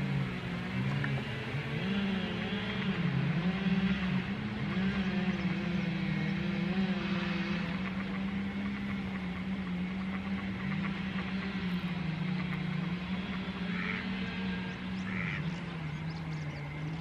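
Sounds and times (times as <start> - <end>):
highway traffic drone: 0.0 - 17.0.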